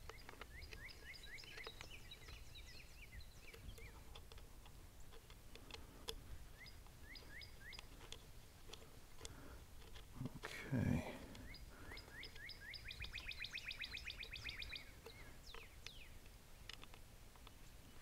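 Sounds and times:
faint bird chirps: 0.0 - 4.4, 6.5 - 8.3, 10.5 - 16.3.

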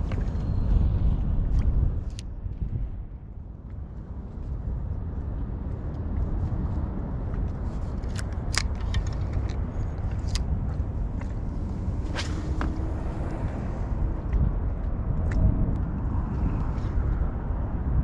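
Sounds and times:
wind and water rumble on microphone: 0.0 - 18.0.

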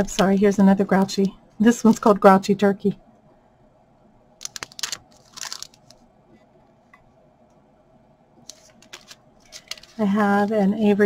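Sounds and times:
plastic packaging crinkling: 4.4 - 6.0, 8.5 - 10.6.

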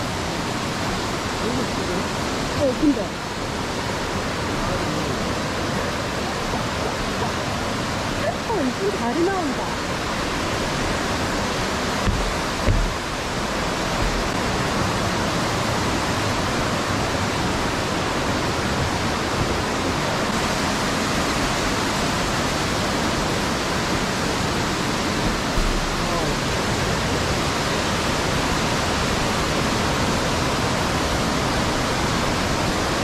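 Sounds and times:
stream rushing over boulders: 0.0 - 33.0
dull low bumps: 10.8 - 15.0, 25.2 - 26.6.

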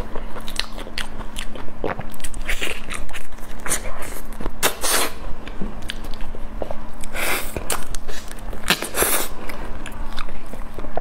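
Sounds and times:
wet chewing and mouth clicks: 0.0 - 4.8.

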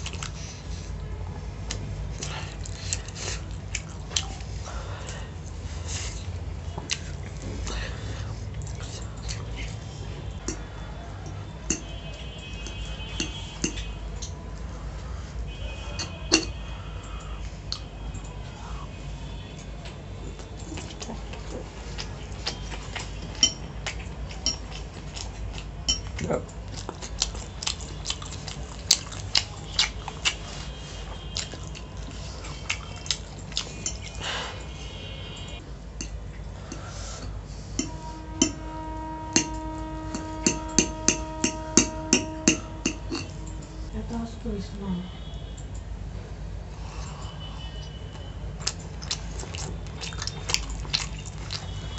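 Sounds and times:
steady low hum: 0.0 - 51.9
fork clinking on ceramic plate: 23.4 - 23.6, 25.9 - 26.2, 39.4 - 43.4
plate ringing: 37.8 - 43.9
faint high whine: 37.8 - 45.8.

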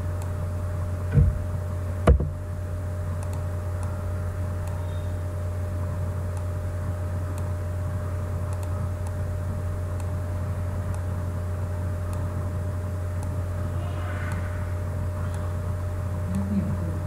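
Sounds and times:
low electrical hum: 0.0 - 17.0
mouse clicks: 8.5 - 9.2
thin high tone: 13.7 - 15.5.

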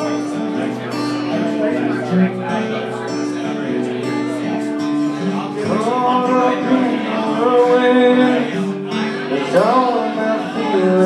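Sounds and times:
acoustic guitar: 0.0 - 11.0
man singing: 0.0 - 11.0.

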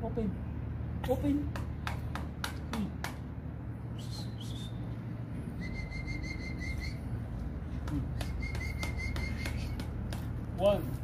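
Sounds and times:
bird chirping: 3.8 - 7.2, 8.2 - 9.9.

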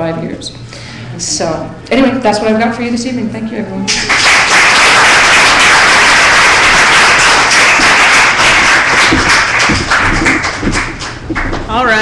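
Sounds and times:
audience applauding: 3.9 - 11.7.

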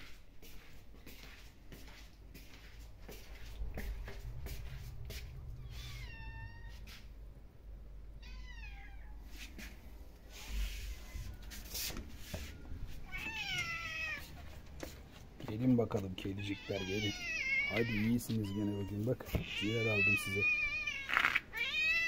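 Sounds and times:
cat meowing: 5.6 - 6.9, 8.2 - 9.2, 13.0 - 14.4, 16.4 - 22.0.

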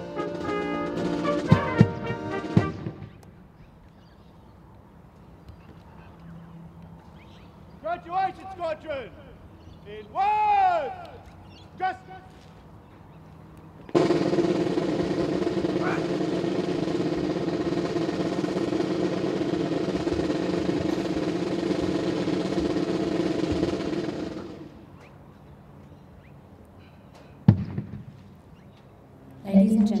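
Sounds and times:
snare drum roll: 0.0 - 3.1, 14.0 - 24.8.

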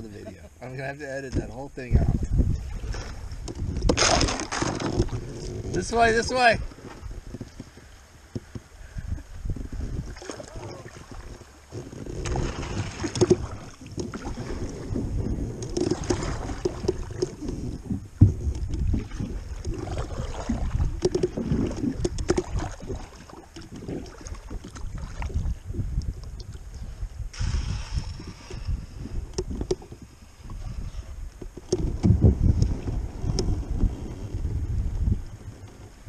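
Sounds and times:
water sloshing against hull: 1.3 - 36.0
wind rumble on microphone: 1.3 - 36.0
sharp knocks on boat: 18.2 - 18.9, 31.4 - 32.4.

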